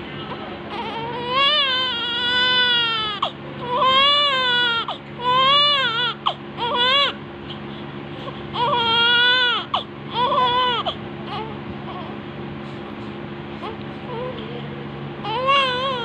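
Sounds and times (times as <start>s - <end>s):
newborn baby crying: 0.7s - 7.2s, 8.2s - 12.2s, 13.6s - 14.4s, 15.2s - 16.0s.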